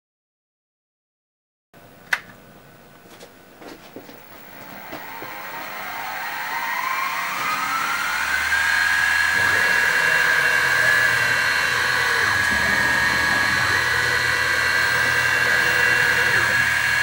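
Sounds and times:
spindle motor whine: 4.0s - 17.0s
low hum: 4.2s - 17.0s.

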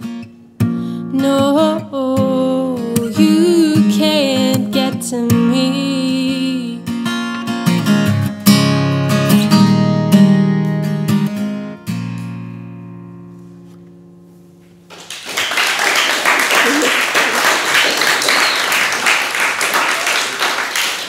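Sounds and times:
acoustic guitar: 0.0s - 15.0s, 18.1s - 19.2s
applause: 14.9s - 21.0s.

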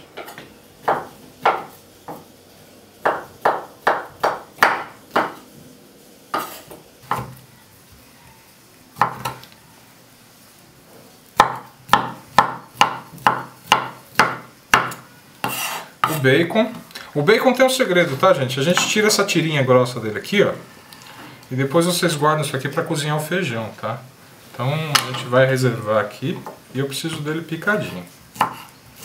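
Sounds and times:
knife chopping on wooden board: 0.2s - 2.2s, 3.0s - 5.4s, 9.0s - 9.4s, 11.4s - 16.2s, 28.4s - 28.7s.

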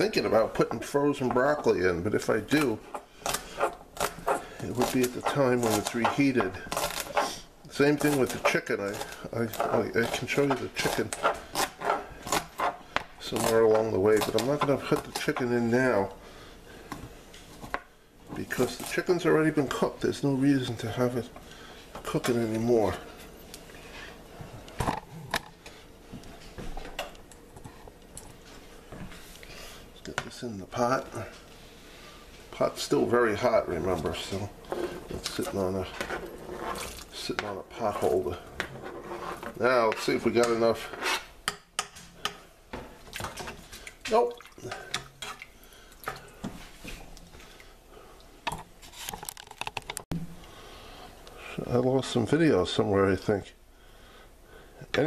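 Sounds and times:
knife scraping cutting board: 2.6s - 15.5s, 33.8s - 41.3s.

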